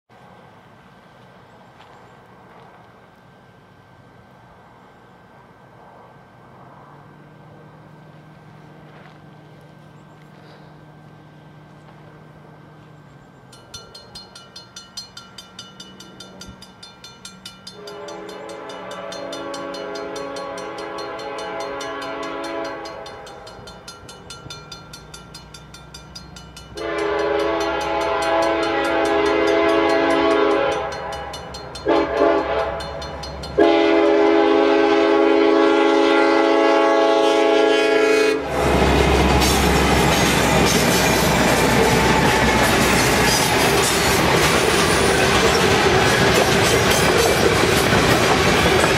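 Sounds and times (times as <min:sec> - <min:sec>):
freight train rumble: 0:00.1 - 0:48.9
wheels clacking over rail joints: 0:11.6 - 0:34.2, 0:38.6 - 0:48.9
crossing bell dinging: 0:12.6 - 0:34.7
locomotive horn: 0:17.7 - 0:23.6, 0:26.8 - 0:40.7.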